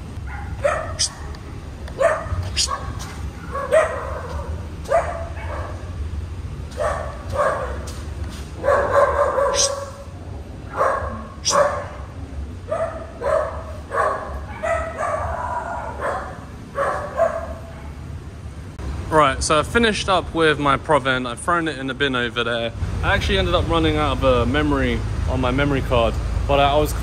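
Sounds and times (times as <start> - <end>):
dog barking: 0.2 - 1.4, 2.0 - 6.0, 6.7 - 18.2.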